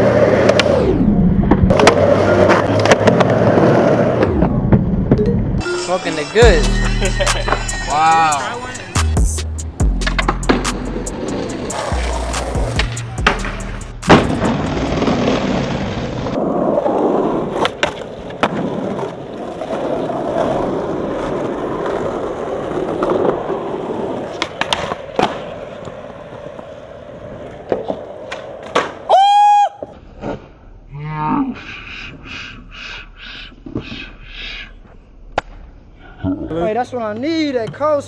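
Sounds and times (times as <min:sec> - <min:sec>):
skateboard landing: 0:00.0 - 0:05.2, 0:10.0 - 0:29.2
skateboard wheels rolling: 0:00.0 - 0:05.2, 0:10.0 - 0:30.8
loud high-pitched tone: 0:05.2 - 0:09.0
skateboard pops and clacks: 0:12.4 - 0:15.4, 0:17.5 - 0:19.8, 0:24.3 - 0:26.0, 0:27.5 - 0:29.1.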